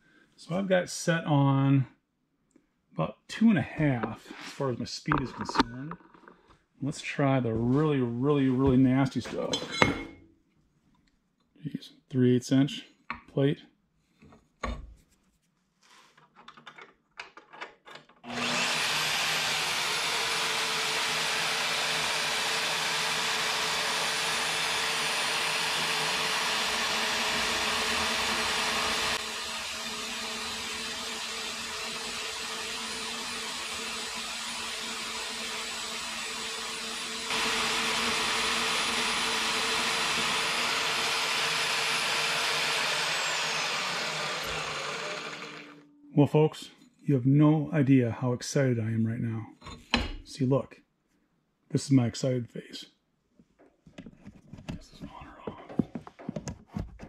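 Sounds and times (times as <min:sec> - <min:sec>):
bandsaw cutting steel: 0:18.3 - 0:45.8.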